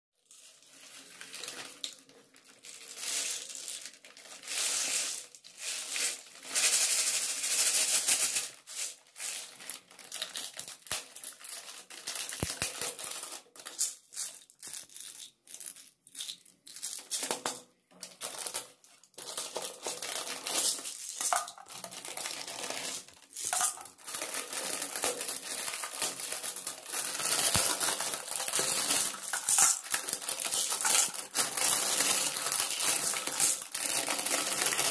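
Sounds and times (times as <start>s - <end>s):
plastic packaging crinkling: 8.2s - 17.4s, 18.0s - 34.9s.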